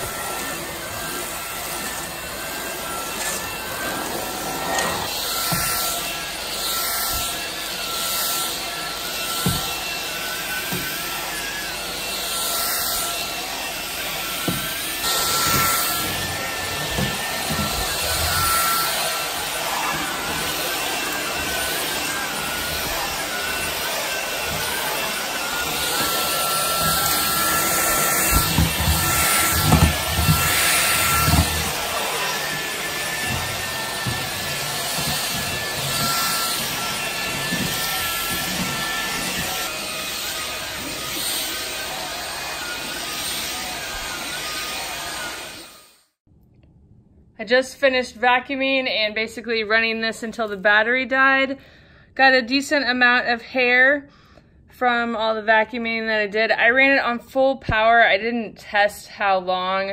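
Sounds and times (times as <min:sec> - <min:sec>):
vacuum motor whine: 0:00.0 - 0:45.8
rush of suction: 0:03.6 - 0:05.1.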